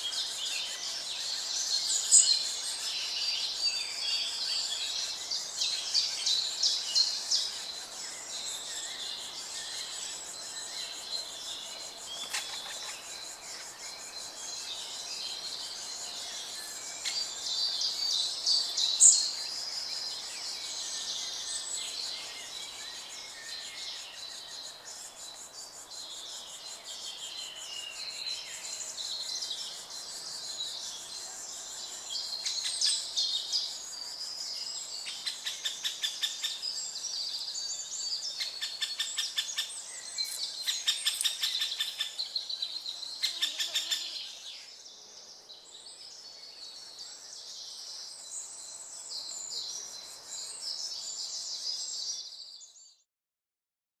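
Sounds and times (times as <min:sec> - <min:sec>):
songbirds singing: 0:00.0 - 0:53.0.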